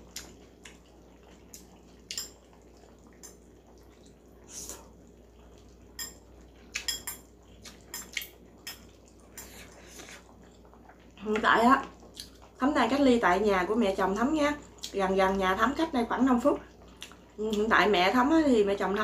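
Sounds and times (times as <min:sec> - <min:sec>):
utensils clinking against bowl: 0:06.8 - 0:07.3.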